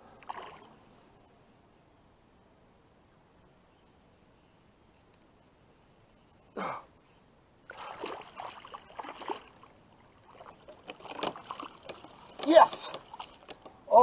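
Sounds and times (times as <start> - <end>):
fish splashing in water: 7.7 - 13.6.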